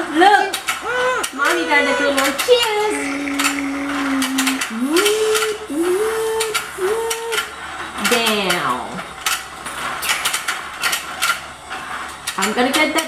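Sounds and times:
person vocalizing wordlessly: 0:02.0 - 0:07.5.

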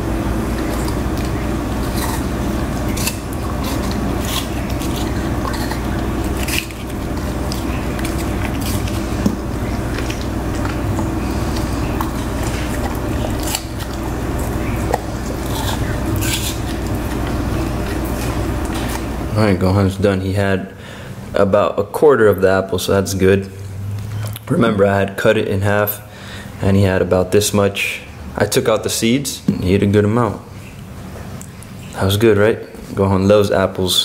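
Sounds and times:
dog chewing apple: 0:00.0 - 0:20.0
low hum: 0:00.0 - 0:20.1.

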